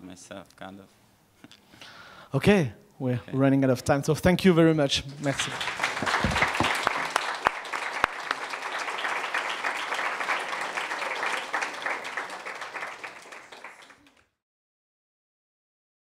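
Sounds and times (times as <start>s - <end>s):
applause: 5.1s - 14.4s.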